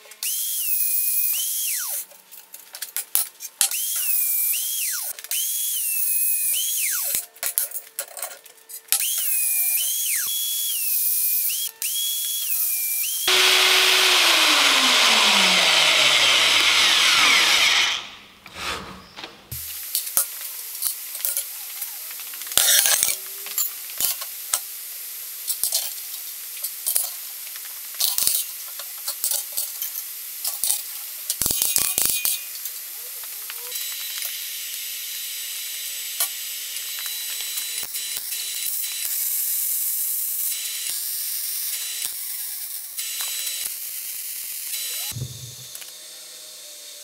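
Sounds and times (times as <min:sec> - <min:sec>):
arc welding hiss: 0:19.5 - 0:45.8.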